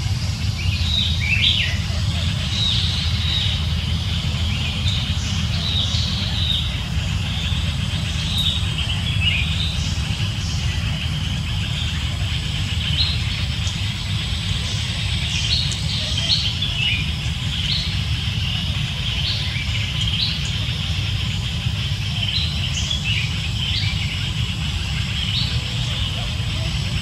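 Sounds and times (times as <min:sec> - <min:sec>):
birds chirping: 0:00.0 - 0:27.0
constant high hiss: 0:00.0 - 0:27.0
steady low rumble: 0:00.0 - 0:27.0.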